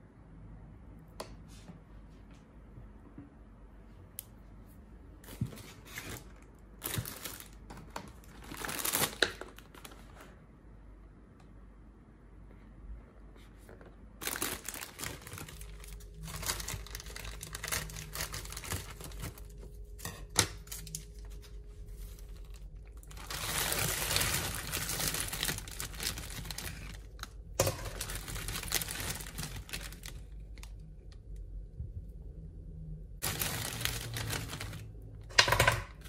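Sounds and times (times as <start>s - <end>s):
plastic packaging crinkling: 5.3s - 10.4s, 14.2s - 31.4s, 33.2s - 36.0s.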